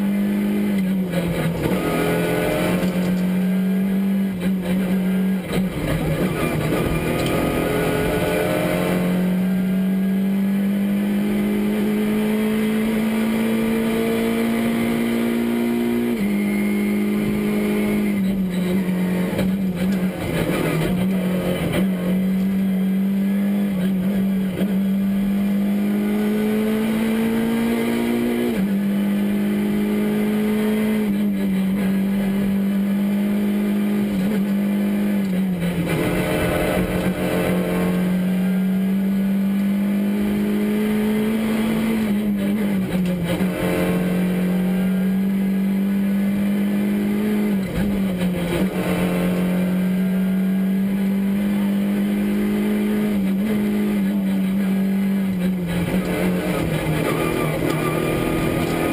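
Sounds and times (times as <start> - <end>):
rally car engine at high revs: 0.0 - 58.9
road and tyre noise: 0.0 - 58.9.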